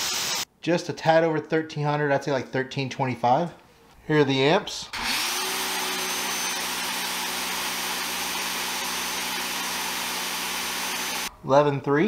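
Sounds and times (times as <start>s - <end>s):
electric pressure washer running: 5.0s - 11.3s.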